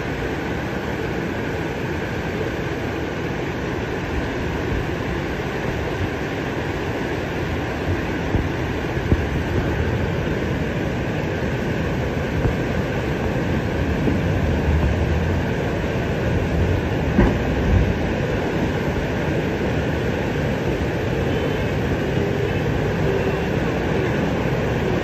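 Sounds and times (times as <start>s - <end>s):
floodwater rushing: 0.0s - 25.0s.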